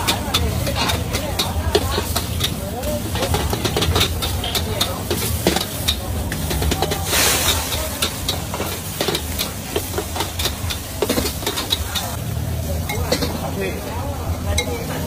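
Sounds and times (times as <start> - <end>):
metal spatula scraping wok: 0.0 - 12.2
food sizzling: 0.0 - 15.0
gas burner rumble: 0.0 - 15.0
flames flaring hiss: 4.2 - 12.5.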